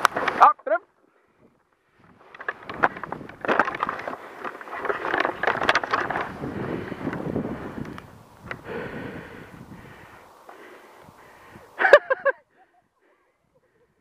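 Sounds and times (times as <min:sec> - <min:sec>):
clicks and knocks on camera: 0:02.1 - 0:06.4
clothing rustling: 0:02.2 - 0:06.6
snow crunching: 0:02.2 - 0:08.3.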